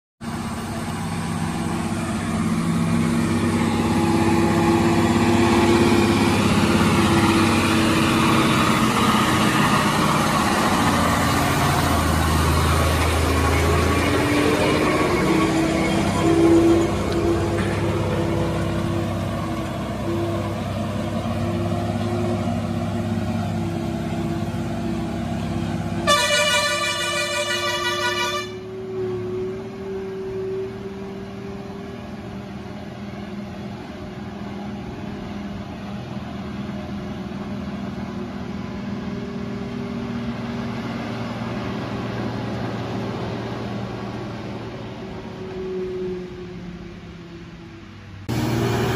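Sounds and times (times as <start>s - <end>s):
truck diesel engine running: 0.2s - 48.9s
truck horn blast: 25.9s - 28.8s.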